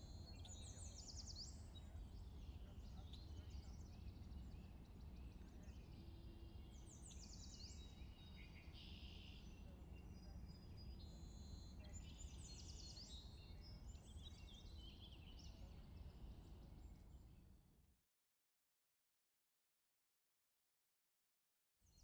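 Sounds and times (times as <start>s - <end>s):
faint songbirds singing: 0.0s - 17.8s.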